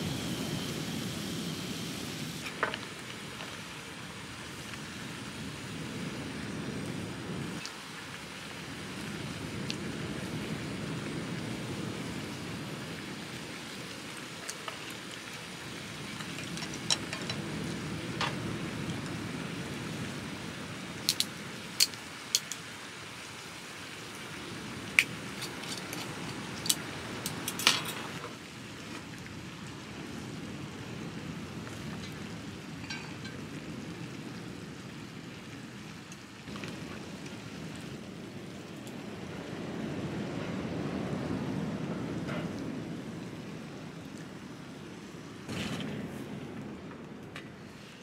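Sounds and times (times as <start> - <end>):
utensils clicking on shells and pan: 21.0 - 22.6.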